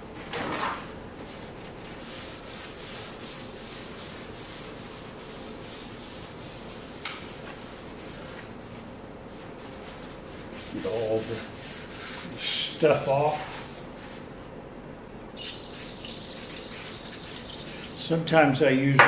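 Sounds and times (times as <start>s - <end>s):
paper towel scrubbing metal: 1.2s - 8.4s, 9.4s - 14.3s, 15.4s - 18.2s.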